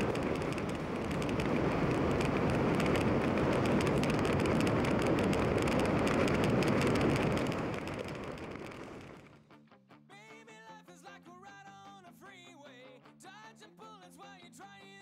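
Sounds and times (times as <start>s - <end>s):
wind buffeting microphone: 0.0s - 9.3s.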